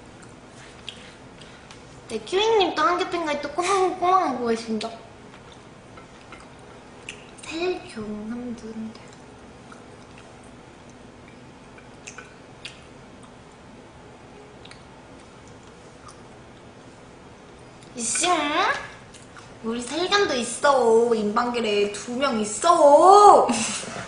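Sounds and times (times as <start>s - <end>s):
soft chewing: 0.1s - 2.1s, 4.8s - 18.0s, 19.0s - 19.6s.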